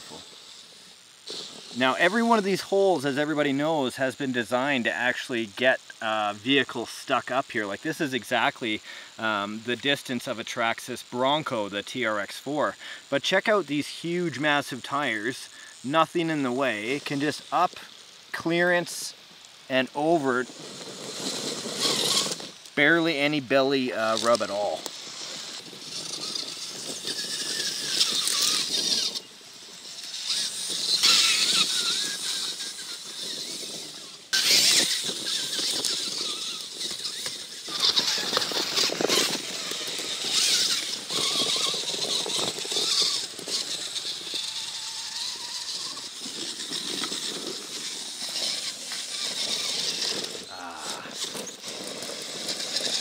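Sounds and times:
electric motors whining: 0.0 - 3.5, 12.2 - 53.0
tyres and chassis rattling over rocks: 19.7 - 53.0.

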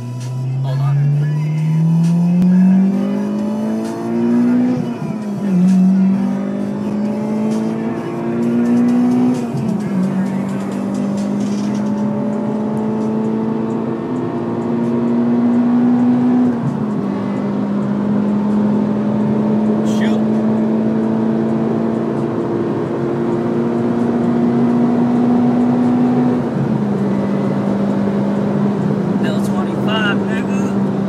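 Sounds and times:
car engine accelerating through gears: 0.0 - 31.0.

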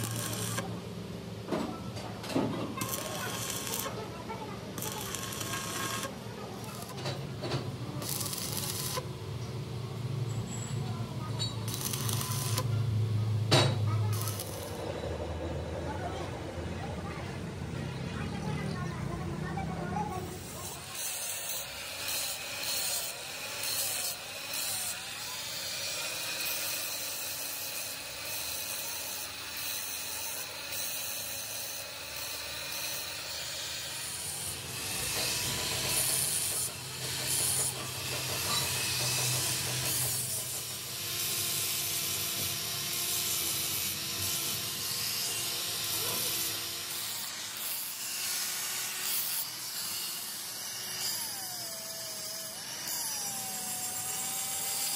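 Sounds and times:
angle grinder grinding metal: 0.0 - 0.9, 1.5 - 15.6, 20.0 - 54.9.

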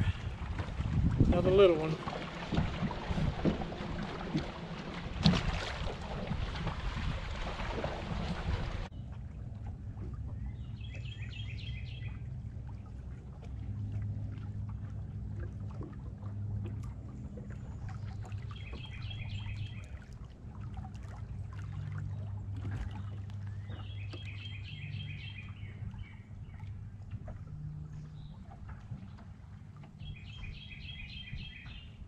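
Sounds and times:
water noise: 0.0 - 32.0
songbird singing: 10.3 - 12.3, 17.2 - 20.2, 21.5 - 26.9, 27.7 - 28.5, 29.8 - 32.0.

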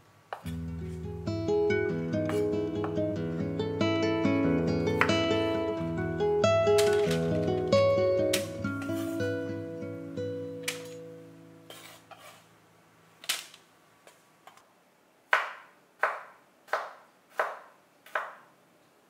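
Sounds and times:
guitar music: 0.4 - 11.8
knife chopping on wooden board: 15.3 - 18.4.

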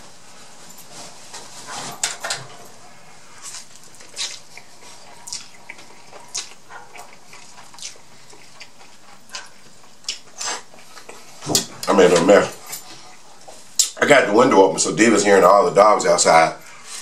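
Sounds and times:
wet chewing smacks: 3.4 - 11.3.

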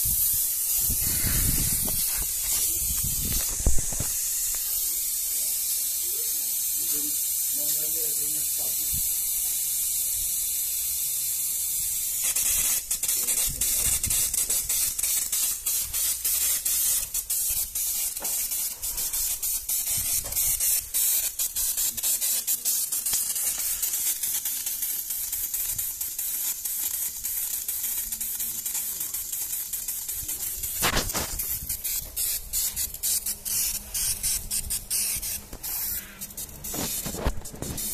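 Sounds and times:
compressed air sprayer hissing: 0.0 - 37.9.

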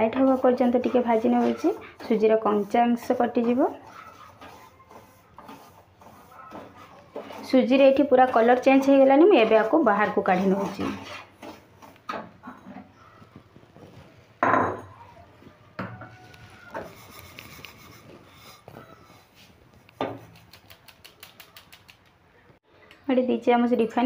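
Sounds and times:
spatula scraping a wok: 0.0 - 12.7, 16.1 - 20.4.

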